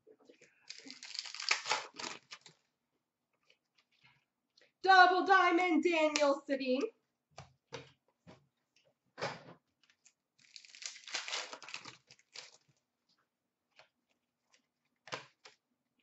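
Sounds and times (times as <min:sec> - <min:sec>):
card pack wrapper crinkling and tearing: 0:00.7 - 0:02.6, 0:10.0 - 0:12.7
cards rustling: 0:00.7 - 0:02.6, 0:10.4 - 0:12.7.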